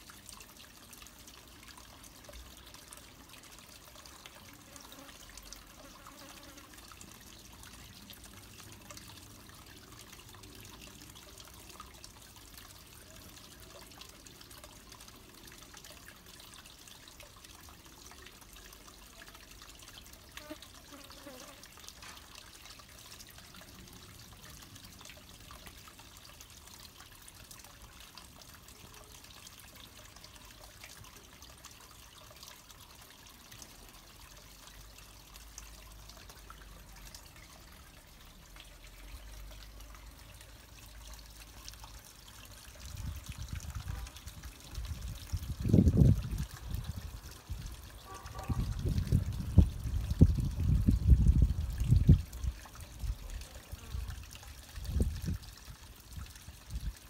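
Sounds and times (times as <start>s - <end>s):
trickle of running water: 0.0s - 57.0s.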